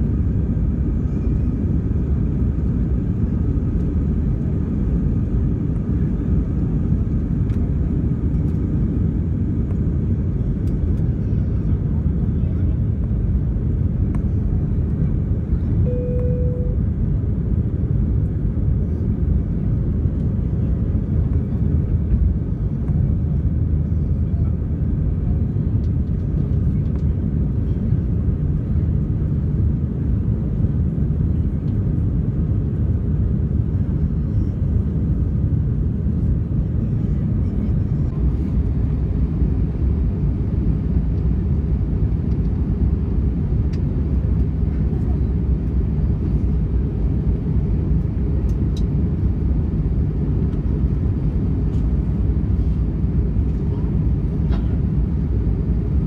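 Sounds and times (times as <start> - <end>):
jet engine cabin rumble: 0.0 - 56.0
single tone chime: 15.8 - 16.8.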